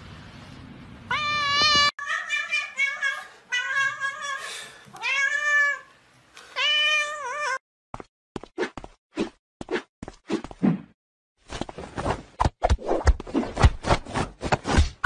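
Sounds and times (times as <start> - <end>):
cat meowing: 1.1 - 5.9, 6.6 - 7.6.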